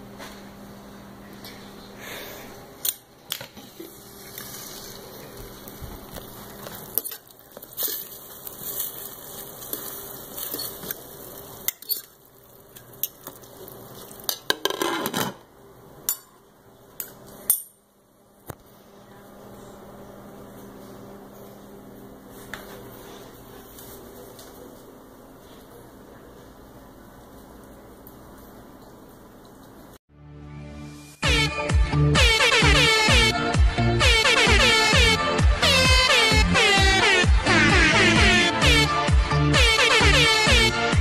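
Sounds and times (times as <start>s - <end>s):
fork clinking and scraping in pan: 6.9s - 11.0s, 11.6s - 12.2s.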